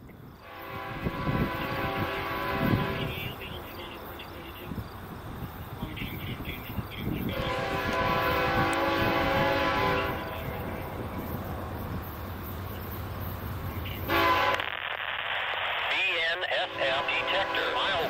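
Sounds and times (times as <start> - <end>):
low rumble of train: 0.0 - 15.1, 15.8 - 18.0
locomotive air horn blasts: 0.4 - 3.4, 7.2 - 10.8, 14.1 - 14.8, 16.6 - 18.0.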